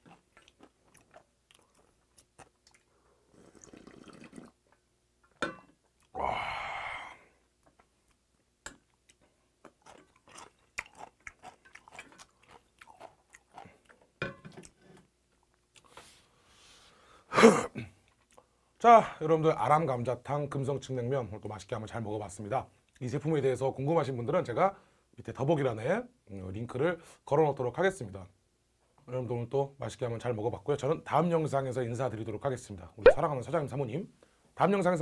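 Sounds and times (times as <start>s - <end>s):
wet chewing: 0.0s - 3.0s, 8.7s - 14.1s
noodle slurp: 3.3s - 4.6s.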